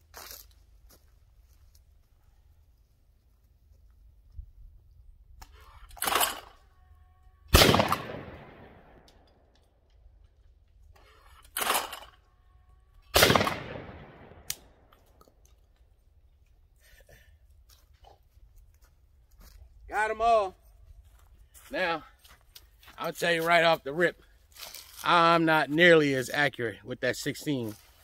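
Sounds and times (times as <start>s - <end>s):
shotgun shots with echo: 7.5s - 9.1s, 13.2s - 14.8s.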